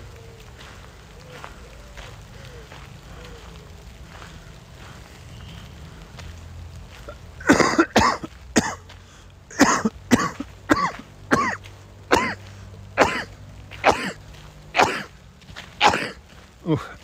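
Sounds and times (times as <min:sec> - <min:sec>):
man coughing: 0:07.4 - 0:08.8, 0:09.5 - 0:12.4, 0:13.0 - 0:14.2, 0:14.8 - 0:15.1, 0:15.8 - 0:16.9.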